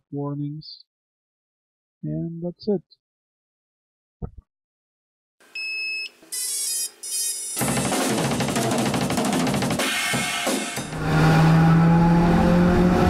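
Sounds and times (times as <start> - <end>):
drum-kit music: 7.6 - 11.0
low drone rising in pitch: 10.9 - 13.0.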